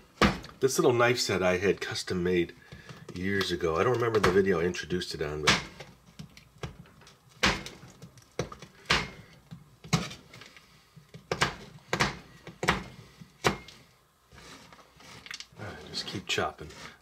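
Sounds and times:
knife chopping toffee on board: 0:11.2 - 0:13.7.

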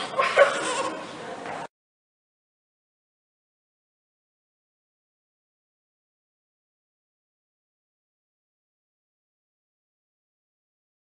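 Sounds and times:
murmur of voices: 0:00.0 - 0:01.7.

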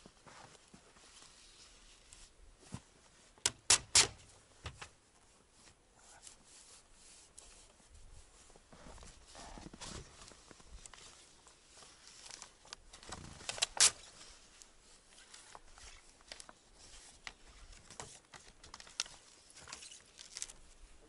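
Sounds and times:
backing paper crinkling: 0:15.2 - 0:20.7.

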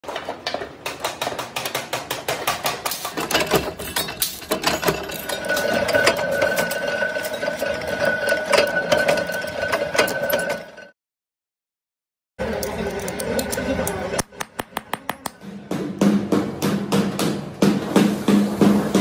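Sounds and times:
rapid metallic clicking and tapping: 0:00.8 - 0:05.2.

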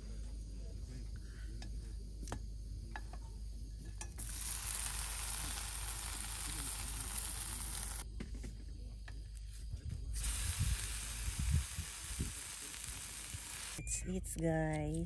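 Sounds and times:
bread sizzling in pan: 0:04.2 - 0:08.0, 0:10.2 - 0:13.8.

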